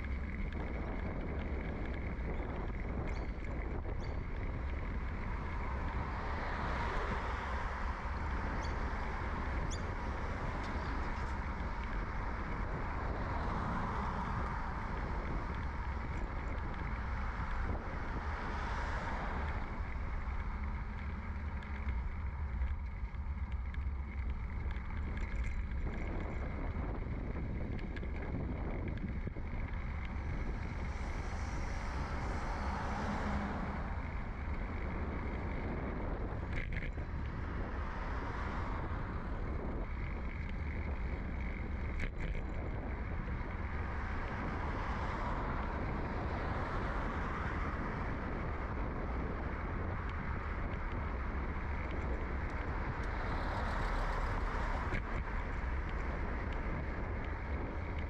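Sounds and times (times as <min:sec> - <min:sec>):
passing traffic: 0:00.0 - 0:58.0
wind and tyres rumbling: 0:00.0 - 0:58.0.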